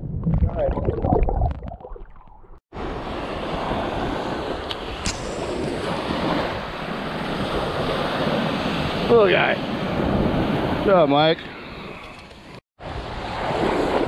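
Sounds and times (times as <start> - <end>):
ocean surf breaking: 2.8 - 12.0, 12.8 - 14.0
wind buffeting microphone: 2.8 - 14.0
sharp click: 4.7 - 5.5.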